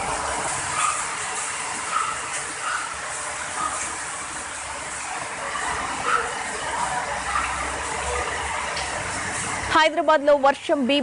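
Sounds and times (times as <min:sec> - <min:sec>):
floodwater rushing: 0:00.0 - 0:09.8.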